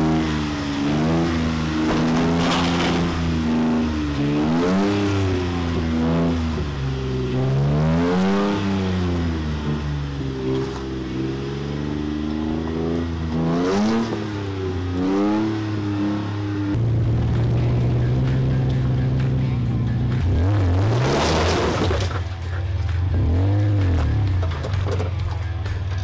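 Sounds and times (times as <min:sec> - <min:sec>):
truck engine revving: 0:00.0 - 0:26.0.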